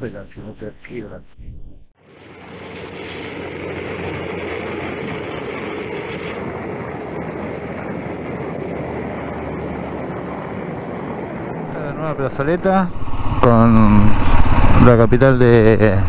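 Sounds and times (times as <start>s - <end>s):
motorcycle engine hum: 2.0s - 16.0s
wind and road noise: 2.0s - 16.0s.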